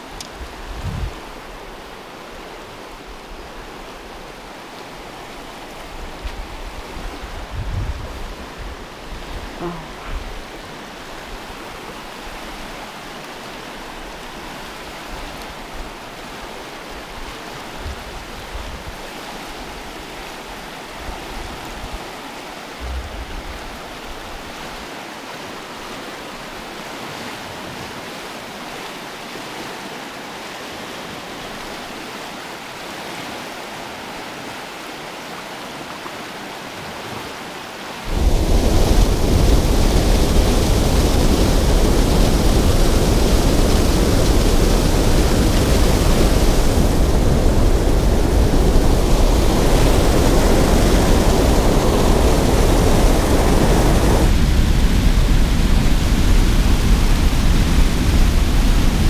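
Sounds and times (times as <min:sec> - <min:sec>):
floodwater rushing and churning: 0:00.0 - 0:59.0
low bumps: 0:22.8 - 0:23.9
water pouring over spillway: 0:38.0 - 0:59.0.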